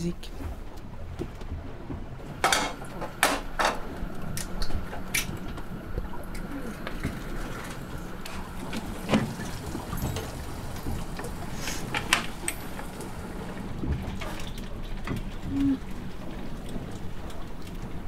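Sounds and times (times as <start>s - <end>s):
low steady hum: 0.0s - 18.0s
brief low tone: 15.5s - 15.8s.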